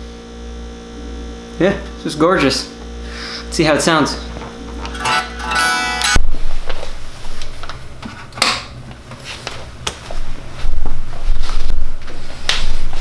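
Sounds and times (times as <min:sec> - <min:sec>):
amplifier buzz: 0:04.6 - 0:06.7.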